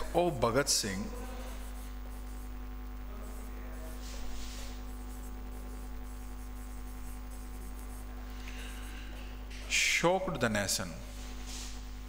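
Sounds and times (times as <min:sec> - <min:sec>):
electrical mains hum: 0:00.0 - 0:12.0
writing scratch on board: 0:00.9 - 0:09.3.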